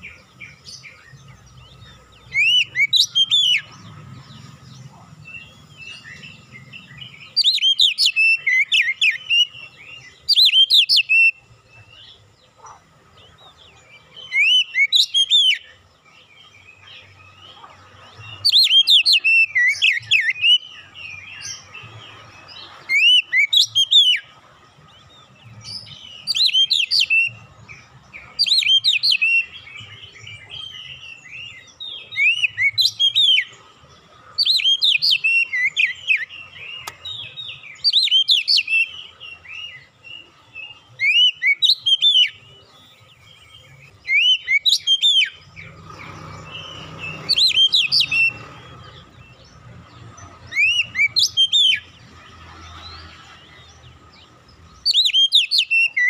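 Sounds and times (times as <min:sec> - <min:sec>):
bird whistling and chirping: 0:00.0 - 0:03.9, 0:05.2 - 0:11.5, 0:14.2 - 0:15.8, 0:18.2 - 0:21.8, 0:22.8 - 0:24.3, 0:25.6 - 0:33.6, 0:34.4 - 0:45.8, 0:46.4 - 0:49.3, 0:50.3 - 0:52.0, 0:54.8 - 0:56.0.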